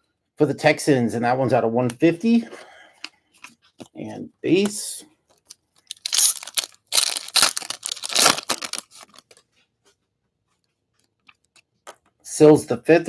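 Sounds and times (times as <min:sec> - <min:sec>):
foil wrapper tearing and crinkling: 0:05.8 - 0:09.4.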